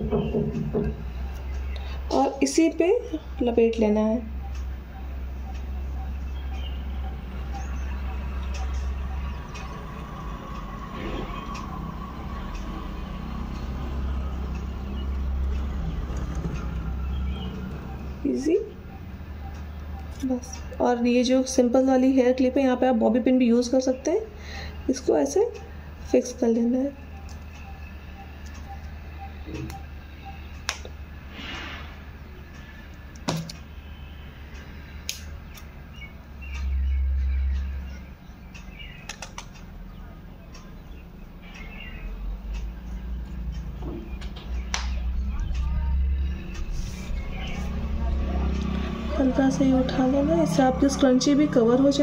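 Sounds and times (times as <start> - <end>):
low background rumble: 0.0 - 52.0
steady low hum: 0.0 - 52.0
low rumble: 39.7 - 52.0.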